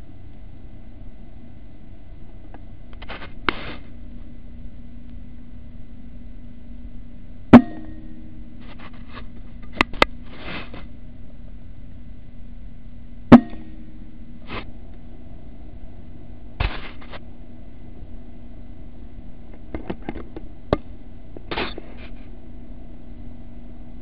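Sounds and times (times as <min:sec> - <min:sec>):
steady low hum: 0:00.0 - 0:24.0
short rustles: 0:08.6 - 0:10.9.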